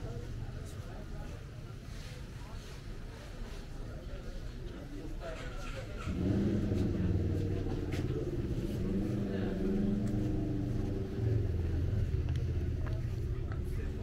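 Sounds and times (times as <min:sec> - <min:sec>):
vehicle engine running: 0:06.0 - 0:14.0.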